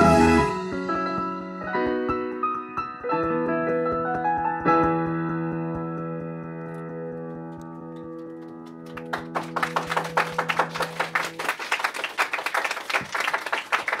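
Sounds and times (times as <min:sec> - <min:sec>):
audience applause: 0:08.1 - 0:14.0.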